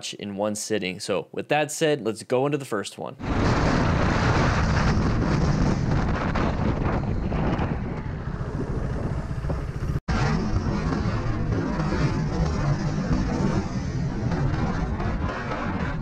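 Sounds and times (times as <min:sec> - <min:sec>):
wind noise on microphone: 0:03.2 - 0:16.0
motorcycle engine running: 0:04.7 - 0:16.0.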